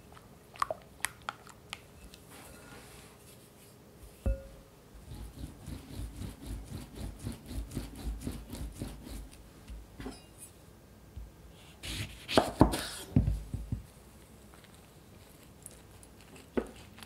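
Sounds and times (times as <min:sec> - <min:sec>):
lemon rubbing on wooden board: 0:05.0 - 0:09.3.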